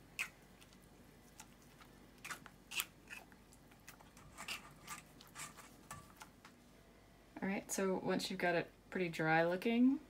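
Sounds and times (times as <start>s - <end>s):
spatula scraping pulp on mesh strainer: 4.0s - 6.3s.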